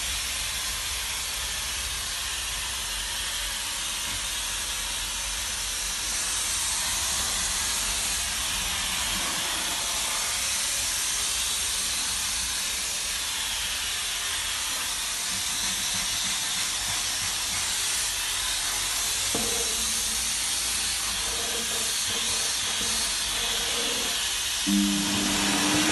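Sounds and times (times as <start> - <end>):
steam cleaner hissing: 0.0 - 25.9.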